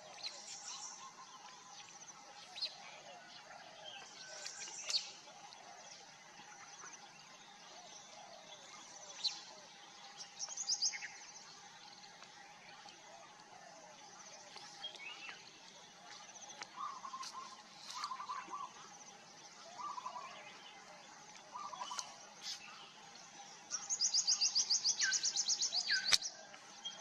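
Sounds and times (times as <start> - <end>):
birds chirping: 0.0 - 27.0
faint steady drone: 0.0 - 27.0
bird warbling trills: 16.6 - 20.9, 21.5 - 23.0.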